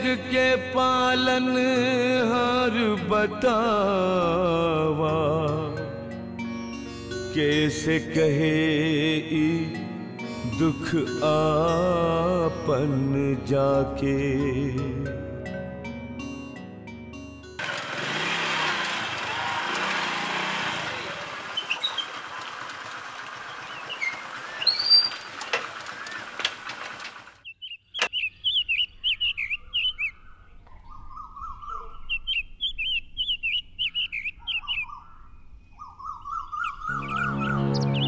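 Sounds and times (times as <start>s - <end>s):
music: 0.0s - 17.6s, 36.9s - 38.0s
birds chirping and singing: 21.4s - 22.6s, 23.2s - 38.0s.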